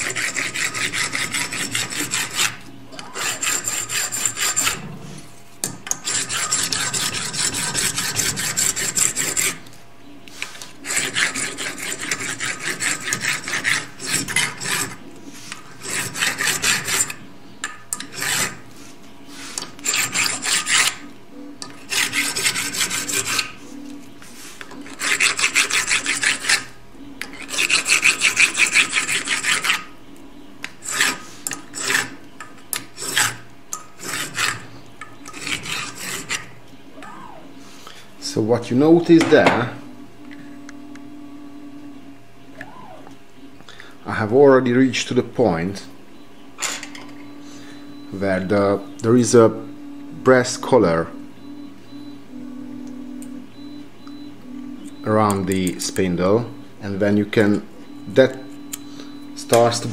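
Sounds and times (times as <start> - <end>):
hand file rasping on metal: 0.0 - 4.9, 5.9 - 9.7, 10.8 - 17.2, 17.9 - 18.7, 19.3 - 21.0, 21.6 - 23.6, 24.8 - 29.9, 30.7 - 36.6.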